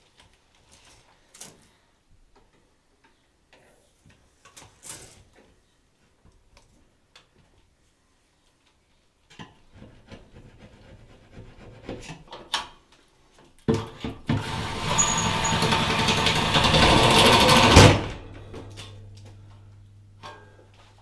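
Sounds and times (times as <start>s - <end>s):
power tool running: 14.3s - 18.2s.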